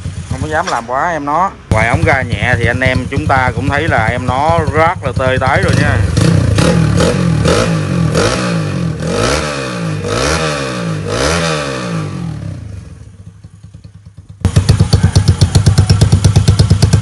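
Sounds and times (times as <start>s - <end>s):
motorcycle engine revving: 0.0s - 0.9s, 1.7s - 17.0s
fast-pulsing engine: 14.2s - 17.0s.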